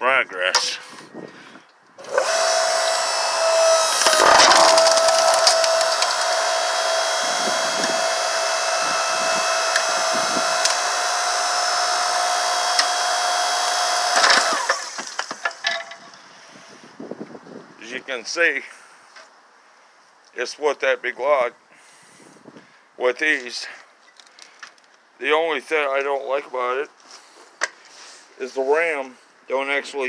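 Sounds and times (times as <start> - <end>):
log splitter motor whining: 2.0 - 15.6
wood cracking: 3.6 - 8.0, 12.6 - 16.0.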